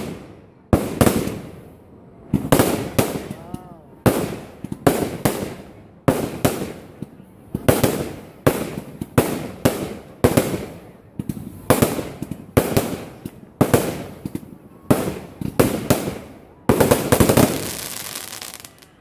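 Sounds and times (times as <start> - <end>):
fireworks bangs: 0.0 - 19.0
fireworks crackle and hiss: 4.1 - 19.0.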